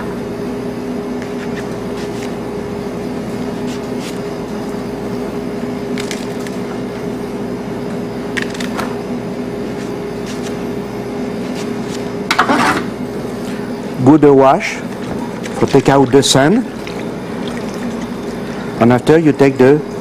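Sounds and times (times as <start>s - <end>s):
steady hum: 0.0s - 20.0s
leek layers snapping: 5.9s - 6.6s.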